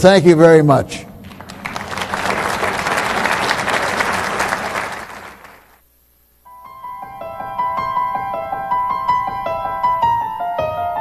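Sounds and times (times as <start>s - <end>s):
audience applauding: 1.2s - 5.8s
piano music: 6.5s - 11.0s.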